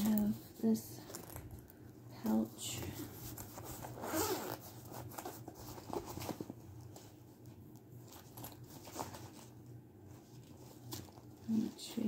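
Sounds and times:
pouch rustling and clicks: 3.1s - 7.1s, 8.0s - 9.5s
zipper opening: 3.8s - 5.3s.

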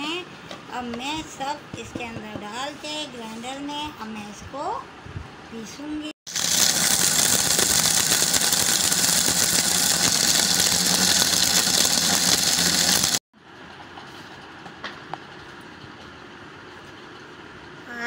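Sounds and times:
mixer grinder whirring: 6.3s - 13.2s.

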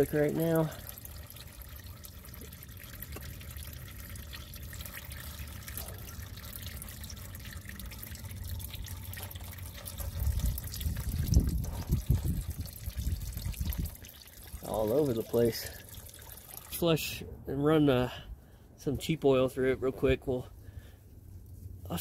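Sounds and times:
oil trickling: 0.0s - 17.2s
wind buffeting microphone: 10.0s - 14.1s.

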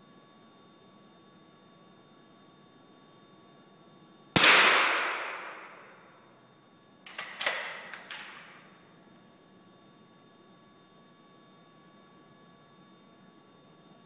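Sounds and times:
rifle shot ringing: 4.4s - 6.1s.

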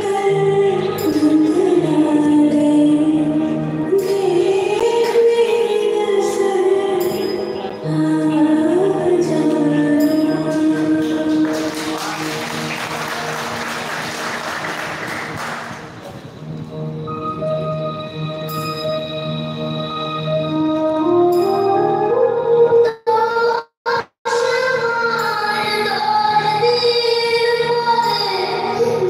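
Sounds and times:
woman singing a song: 0.0s - 11.8s, 24.3s - 29.0s
audience applause: 11.3s - 16.0s.

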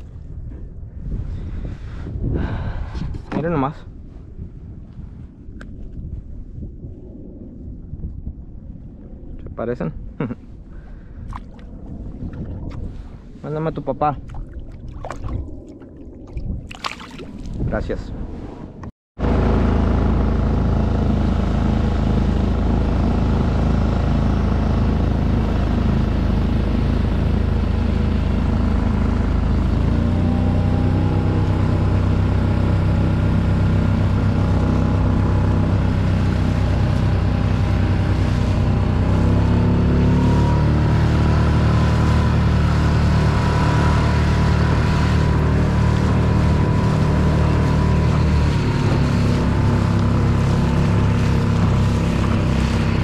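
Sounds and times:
small outboard motor running: 19.2s - 53.0s.

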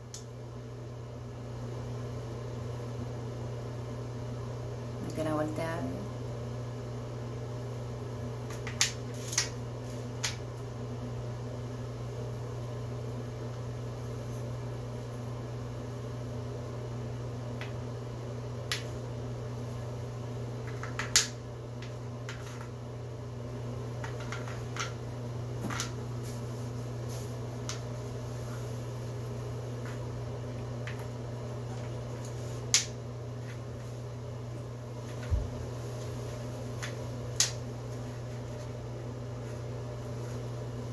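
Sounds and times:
low background hum: 0.0s - 40.9s.

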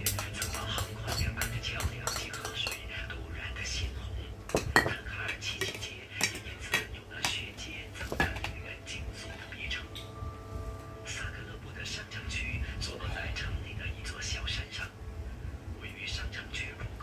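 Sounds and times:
cutlery clinking against dishes: 0.0s - 3.0s, 4.5s - 8.6s.

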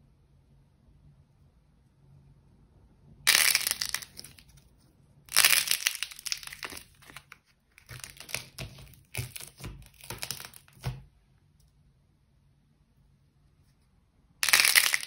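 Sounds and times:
dry clay cracking when crushed: 3.3s - 4.6s, 5.3s - 11.1s, 14.4s - 15.0s.

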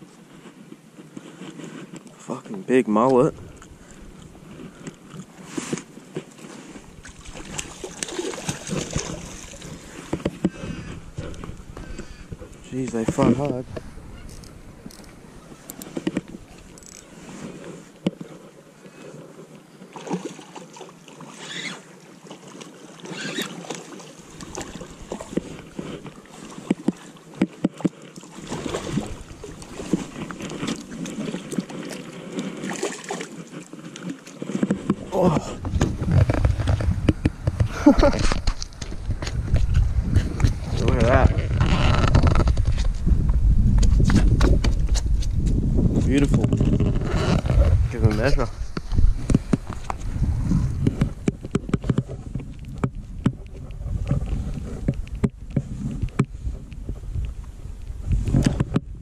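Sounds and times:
wind rumble on microphone: 3.2s - 4.8s, 6.7s - 17.5s, 34.6s - 59.0s
fish splashing and thrashing: 3.4s - 17.6s, 19.8s - 45.4s
fishing tackle clicks and knocks: 7.5s - 17.1s, 34.0s - 43.0s, 50.8s - 56.9s
fishing reel clicks and knocks: 14.3s - 15.9s, 16.8s - 17.1s.

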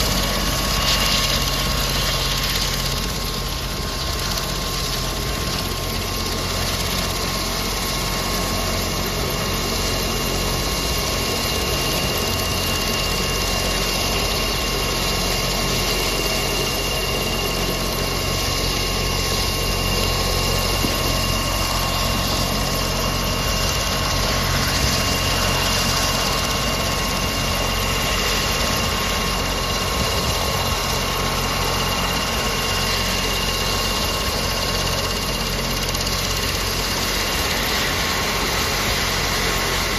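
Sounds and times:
helicopter engine whine: 0.0s - 39.9s
helicopter rotor noise: 0.0s - 39.9s.

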